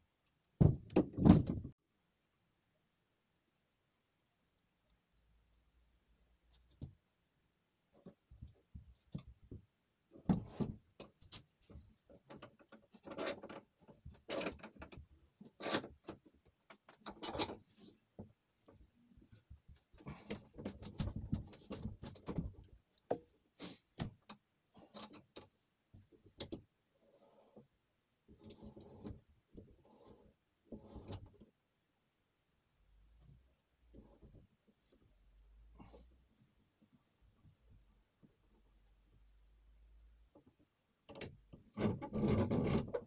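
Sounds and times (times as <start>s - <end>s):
metal vise clunks and scraping: 41.1s - 43.0s.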